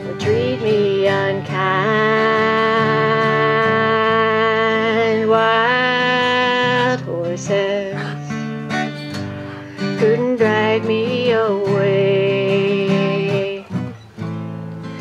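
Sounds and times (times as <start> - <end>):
acoustic guitar strumming: 0.0 - 15.0
woman singing held notes: 9.8 - 13.9.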